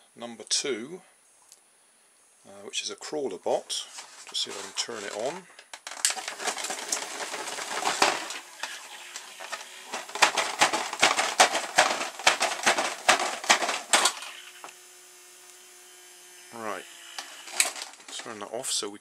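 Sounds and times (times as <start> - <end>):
toothbrush motor buzzing: 8.4 - 9.9, 13.8 - 17.8
robot clattering on wooden desk: 9.5 - 14.3.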